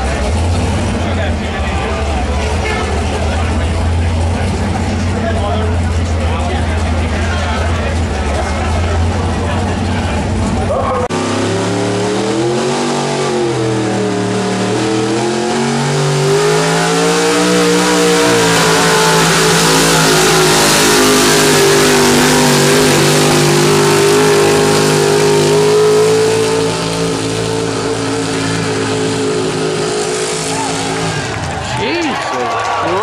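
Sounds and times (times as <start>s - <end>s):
truck engine at full throttle: 0.0s - 33.0s
rushing noise: 10.2s - 32.0s.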